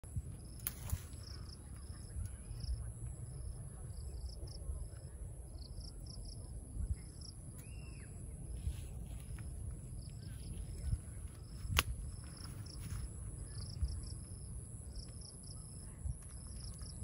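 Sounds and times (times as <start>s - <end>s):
insects chirping: 0.0s - 17.0s.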